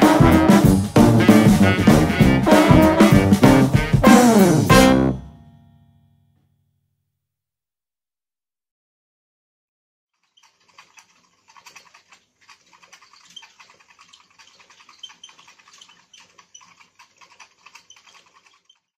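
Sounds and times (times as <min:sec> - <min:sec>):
toy motor whirling: 0:10.2 - 0:19.0.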